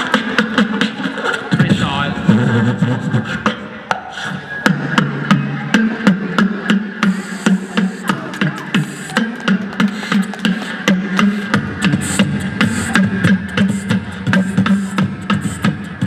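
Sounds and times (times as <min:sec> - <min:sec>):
beatboxing drum hits: 0:00.0 - 0:16.0
low vocal bass tone: 0:01.5 - 0:03.5.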